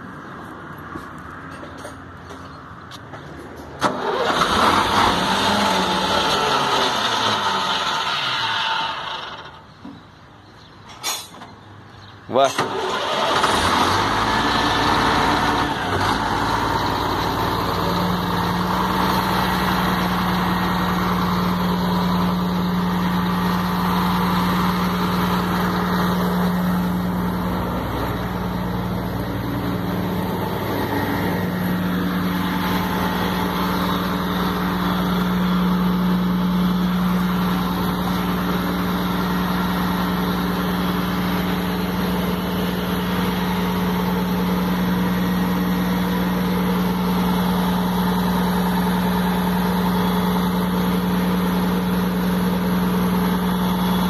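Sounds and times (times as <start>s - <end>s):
diesel truck engine idling: 12.2s - 54.0s.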